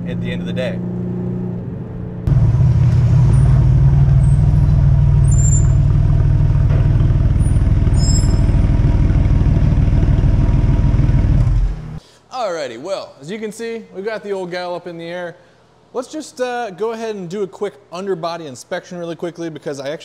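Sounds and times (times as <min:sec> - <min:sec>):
car engine low rumble: 0:00.0 - 0:12.0.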